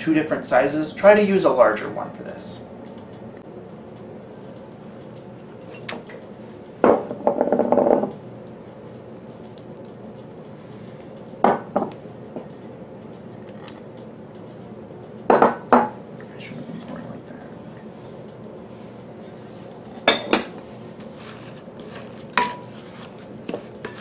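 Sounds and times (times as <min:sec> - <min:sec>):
bowls scraping glass bowl rim: 0:21.1 - 0:24.0.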